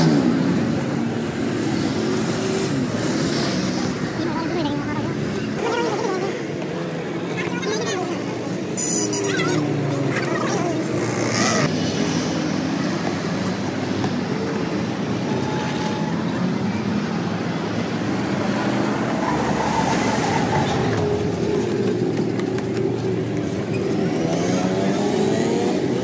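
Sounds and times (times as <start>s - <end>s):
traffic engine noise: 0.0s - 26.0s.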